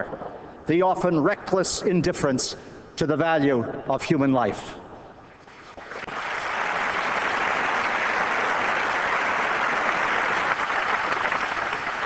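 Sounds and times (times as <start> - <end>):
large audience applauding: 5.4 - 12.0.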